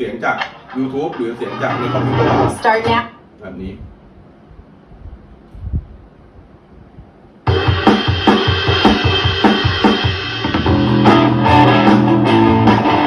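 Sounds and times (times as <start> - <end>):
rock backing track: 0.0 - 3.0, 7.4 - 13.0.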